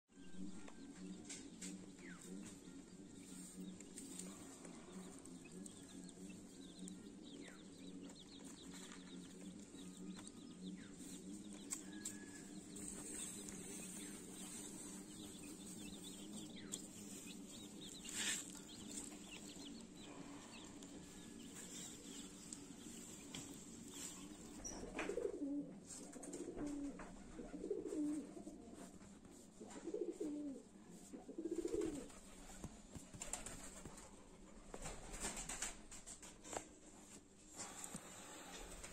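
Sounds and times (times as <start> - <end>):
chicks peeping: 0.6 - 29.4
pigeons cooing: 11.7 - 33.6.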